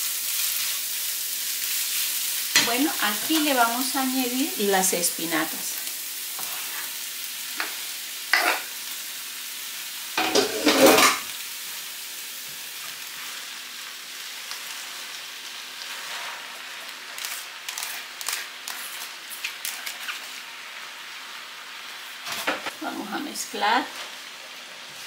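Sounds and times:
onion sizzling in oil: 0.0 - 25.0
clatter and rustle of leaves: 16.0 - 20.4.

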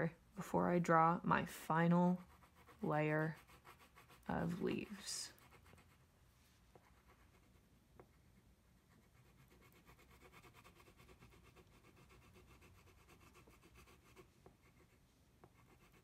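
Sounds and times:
crayon scratching on paper: 2.0 - 6.0, 6.7 - 16.0.

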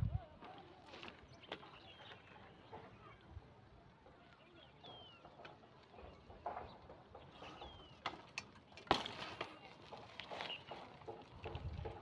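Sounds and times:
bike rolling over gravel: 0.0 - 12.0
bird chirp: 1.1 - 3.2, 4.2 - 8.9.

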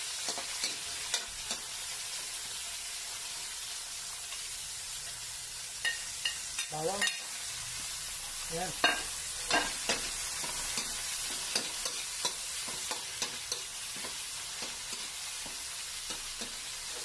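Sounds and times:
vegetables sizzling in hot oil: 0.0 - 17.0
metal spatula scraping a pan: 8.8 - 17.0.

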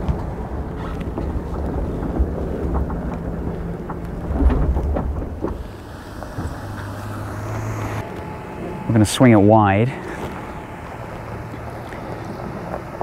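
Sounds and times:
tyres and suspension knocking: 0.0 - 8.0
low vehicle rumble: 0.0 - 13.0
wind buffeting: 0.0 - 13.0.

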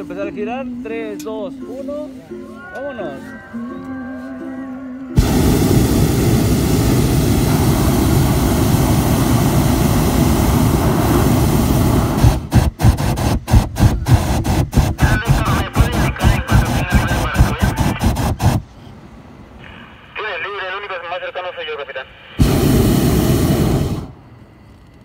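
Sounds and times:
propane burner firing: 5.2 - 18.6, 22.4 - 24.3.

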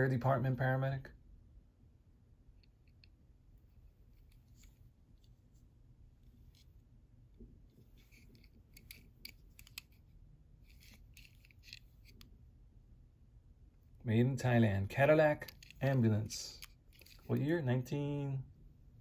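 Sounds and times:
low room hum: 0.0 - 19.0
fingers handling toy car: 7.8 - 12.3, 15.4 - 17.3.

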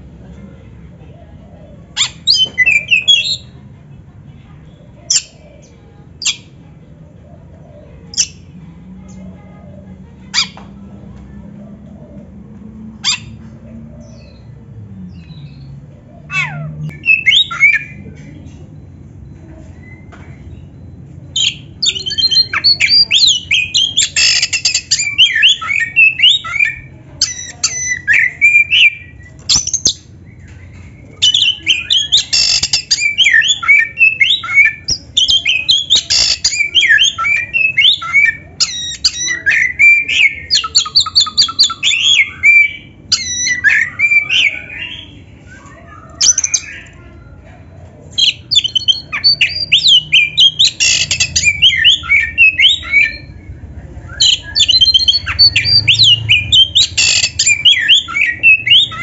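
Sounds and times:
bird singing whistles and squawks: 2.0 - 3.5, 16.3 - 18.0, 21.3 - 30.5, 31.2 - 47.0, 48.2 - 59.0.

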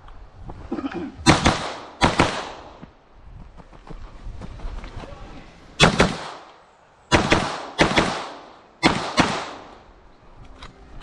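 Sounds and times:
gunshots: 1.2 - 2.8, 5.8 - 9.8.

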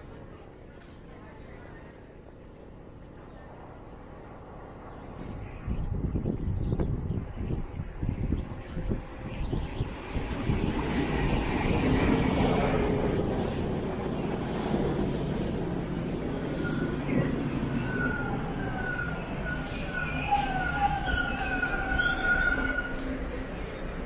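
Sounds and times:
subway train rumble: 0.0 - 24.0
wheel and brake squeals: 17.9 - 24.0.

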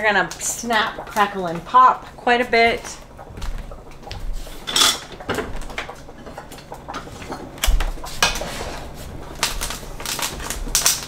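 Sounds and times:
peppers popping in hot pan: 9.3 - 11.0.

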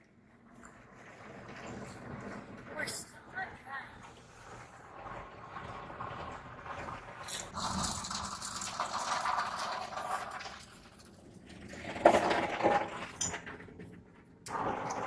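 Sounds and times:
car wash water and machinery: 0.0 - 15.0
loud clatter: 11.6 - 15.0.

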